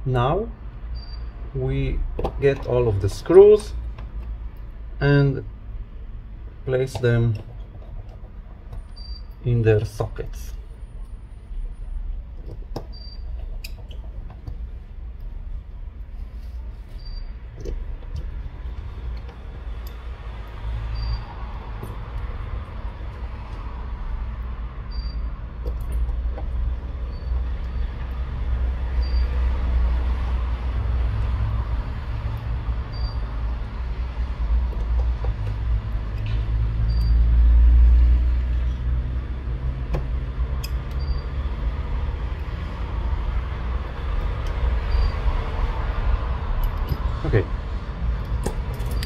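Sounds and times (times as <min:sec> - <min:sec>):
steady low rumble: 0:00.0 - 0:49.0
screwdriver clicks: 0:39.9 - 0:41.1.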